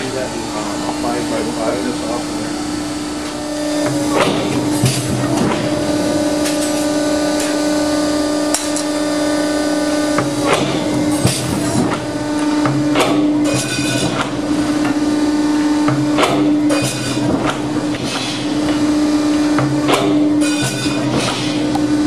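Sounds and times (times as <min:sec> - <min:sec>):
power shear humming: 0:00.0 - 0:22.0
sharp metallic clanks: 0:12.6 - 0:14.4, 0:15.9 - 0:18.5, 0:19.6 - 0:21.8.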